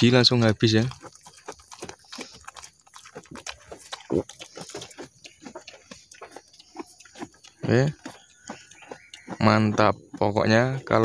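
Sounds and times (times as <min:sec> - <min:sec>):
goat chewing crunchily: 0:00.0 - 0:11.0.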